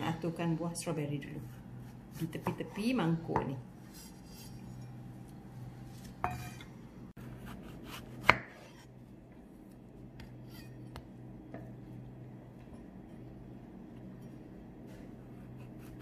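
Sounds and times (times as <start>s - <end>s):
knife slicing strawberries: 7.2s - 8.9s.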